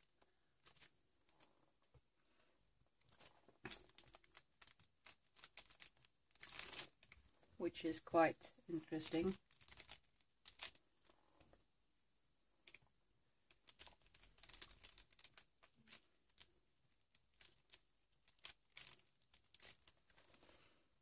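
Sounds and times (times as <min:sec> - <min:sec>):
paper rustling and crackling: 0:00.0 - 0:02.1, 0:03.0 - 0:07.4, 0:08.9 - 0:11.5, 0:13.5 - 0:20.8.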